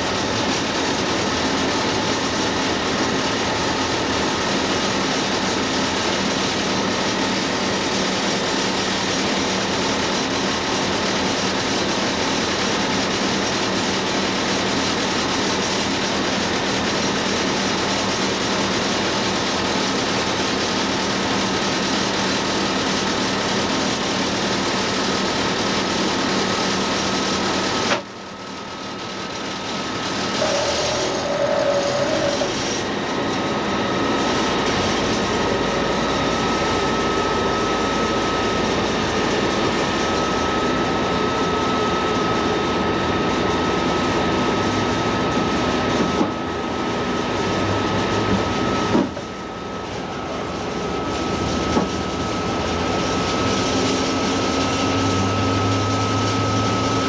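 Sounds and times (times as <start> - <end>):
locomotive cab engine noise: 0.0 - 57.0
brief steady tone: 30.4 - 32.5.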